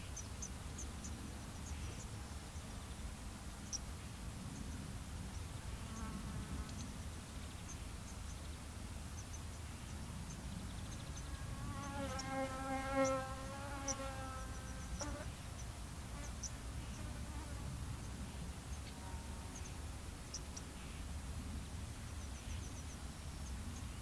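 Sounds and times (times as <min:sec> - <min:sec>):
insect buzzing: 0:10.8 - 0:17.7.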